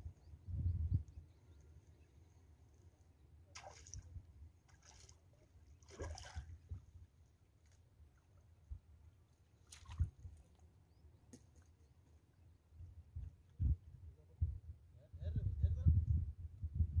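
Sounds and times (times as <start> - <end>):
fish splashing in water: 3.5 - 4.0, 5.8 - 6.5.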